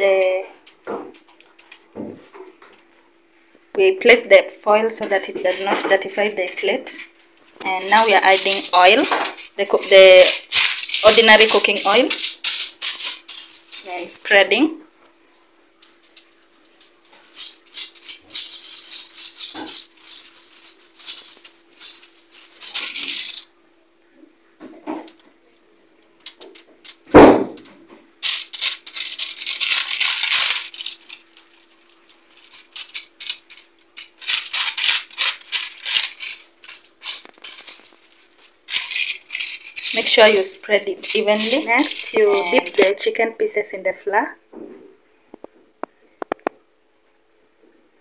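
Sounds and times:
faint steady hum: 0.0 - 48.0
foil crinkling and rustling: 7.0 - 14.4, 15.9 - 23.5, 28.2 - 42.9.

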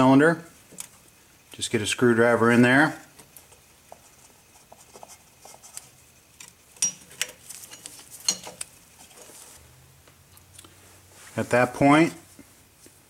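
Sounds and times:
screwdriver clicking and scraping metal: 6.4 - 8.7.

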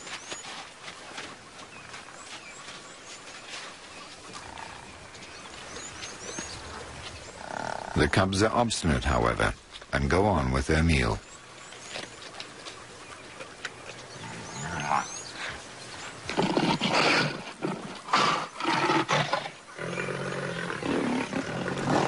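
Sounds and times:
lions growling and snarling: 4.0 - 8.2, 13.1 - 22.0.

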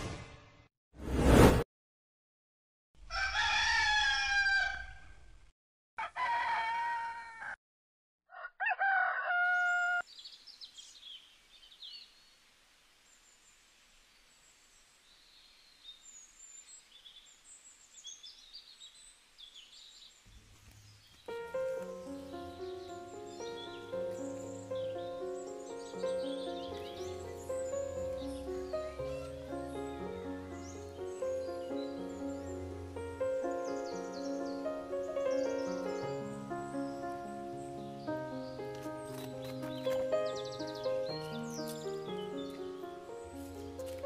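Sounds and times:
brief swoosh: 0.0 - 1.7
rooster crowing: 3.0 - 5.2, 6.0 - 7.6, 8.3 - 10.0
faint birds chirping: 10.0 - 43.6.

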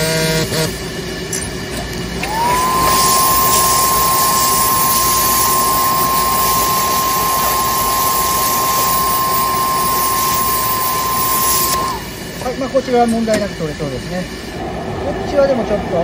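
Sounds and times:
spotting gun hissing with whistle: 2.3 - 12.4.

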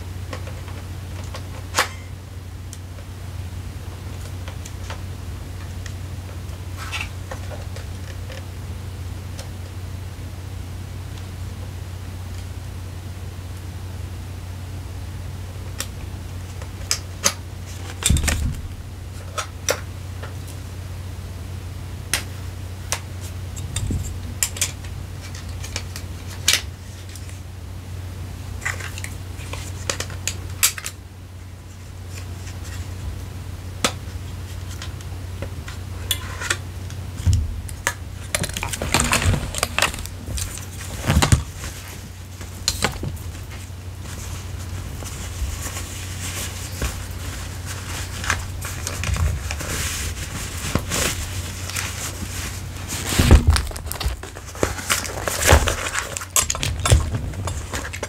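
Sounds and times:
steady low hum: 0.0 - 58.0
rustling: 34.0 - 58.0.

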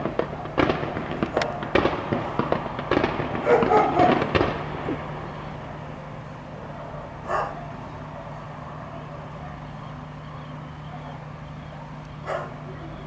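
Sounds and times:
steady low hum: 0.0 - 13.0
dog barking: 3.4 - 4.2, 7.2 - 7.7, 11.8 - 12.6.

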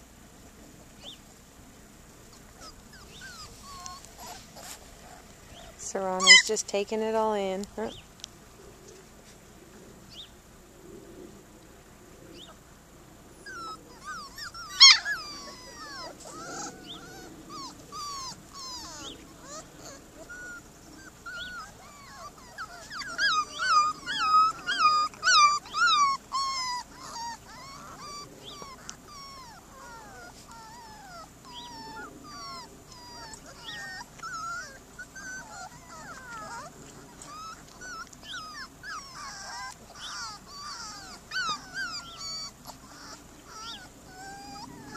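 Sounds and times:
puppies whining: 2.3 - 7.9, 13.4 - 44.9
puppy yelp: 2.6 - 6.5, 13.4 - 44.9.

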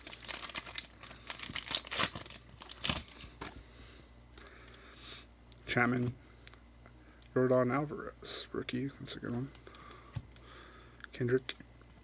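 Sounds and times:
wrapper tearing and crinkling: 0.0 - 3.5.

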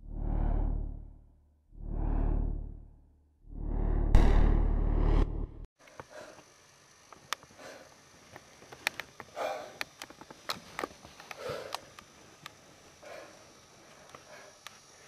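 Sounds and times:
small clicks and taps: 8.3 - 12.6
soft breathing or sniffing: 9.4 - 9.8, 11.4 - 11.9, 13.0 - 15.0.

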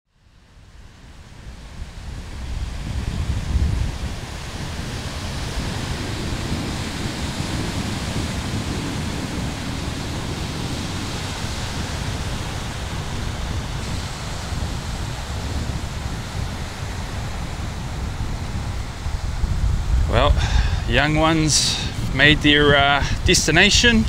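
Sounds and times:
wind rumbling on microphone: 0.2 - 24.0
surf breaking on stony beach: 1.0 - 24.0.

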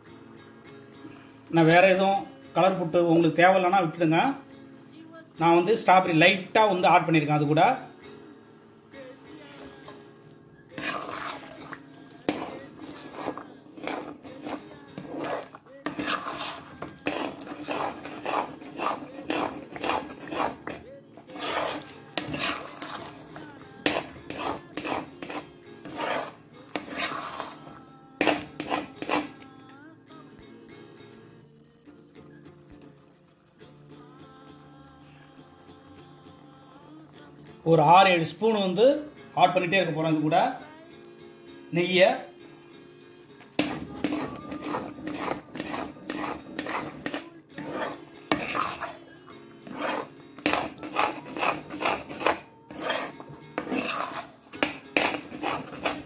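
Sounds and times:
metal spatula scraping a pan: 10.7 - 29.5, 43.4 - 56.0.

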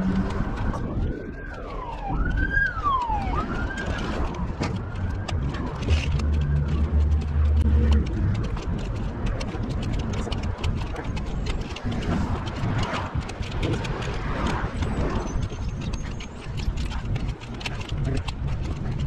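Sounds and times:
siren wailing: 0.0 - 8.0
low rumble with small clicks: 0.0 - 19.0.

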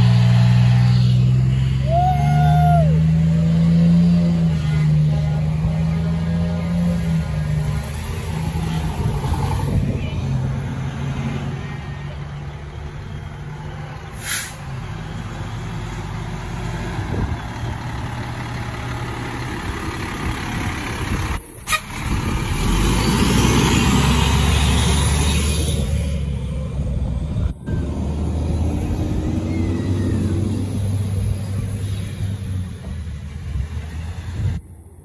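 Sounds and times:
fire engine diesel engine: 0.0 - 35.0
air brake hiss: 14.2 - 14.6.

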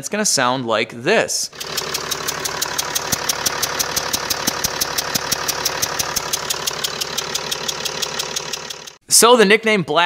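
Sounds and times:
rapid regular engine ticking: 1.5 - 9.0
diesel engine idling: 1.6 - 9.0.

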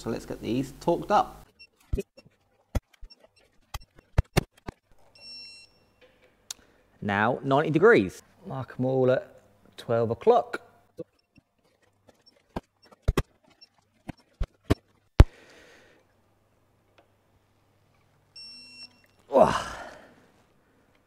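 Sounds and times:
wrench beep: 3.0 - 4.4, 5.1 - 6.1, 11.0 - 11.4, 18.4 - 19.3
man sighing: 19.3 - 20.2.

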